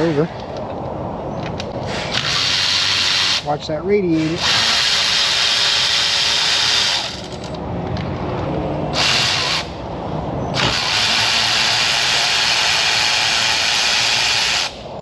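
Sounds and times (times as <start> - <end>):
power tool whirring: 1.9 - 3.4, 4.2 - 7.6, 9.0 - 9.7, 10.6 - 14.8.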